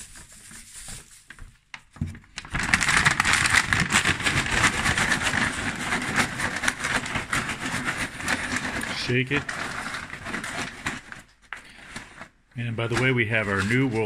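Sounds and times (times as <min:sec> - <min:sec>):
paper bag of greens shaken: 0:02.4 - 0:14.0.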